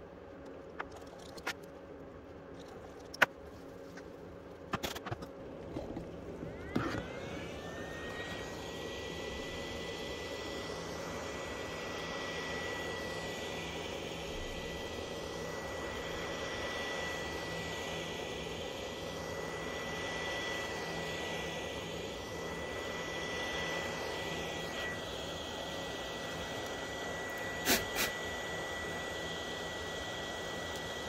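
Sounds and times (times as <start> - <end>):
heat gun blowing: 19.4 - 29.0.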